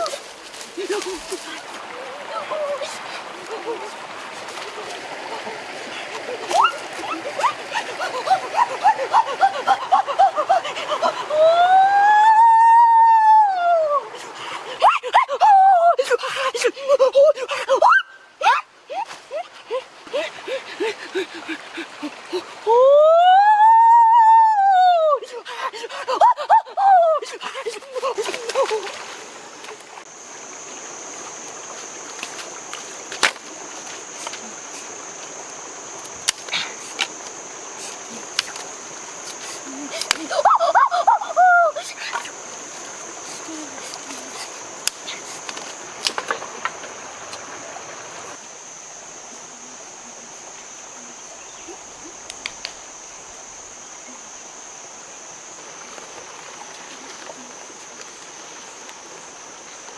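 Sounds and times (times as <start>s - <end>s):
stream hissing: 0.0s - 59.9s
boy yelling excitedly: 1.9s - 3.9s, 40.2s - 41.9s.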